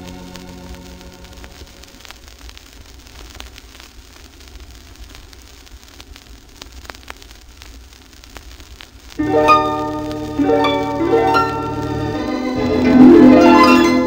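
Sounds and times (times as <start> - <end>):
vinyl clicks and pops: 0.0 - 14.0
vinyl surface hiss: 0.0 - 14.0
organ chord: 9.2 - 14.0.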